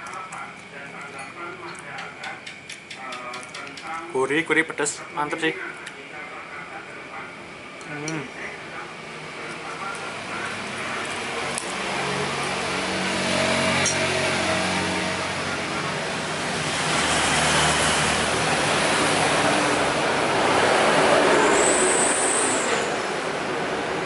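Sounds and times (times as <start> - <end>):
trucks passing on highway: 9.8 - 24.0.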